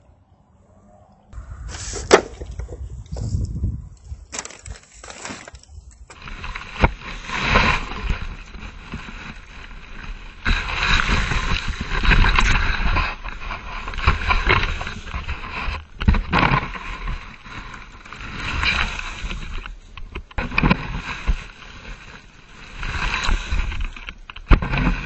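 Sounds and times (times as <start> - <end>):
shovel scraping pavement: 1.7 - 3.4, 4.3 - 19.5
dry leaves crunching: 4.2 - 10.4.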